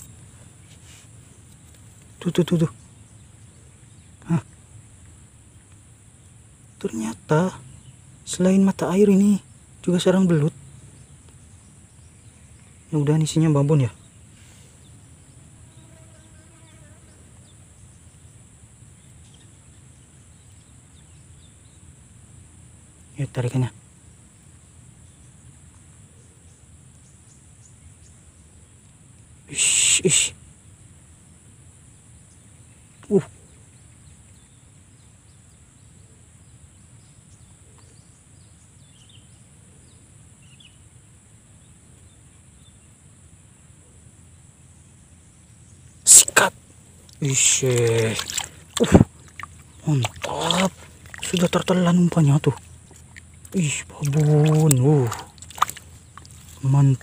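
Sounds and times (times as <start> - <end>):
faint bird chirps: 0.0 - 22.1, 31.9 - 40.9, 44.8 - 57.0.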